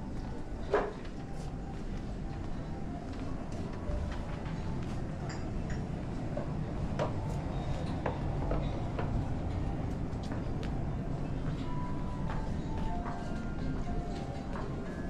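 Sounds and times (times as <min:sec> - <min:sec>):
hum of shoppers: 0:00.0 - 0:15.0.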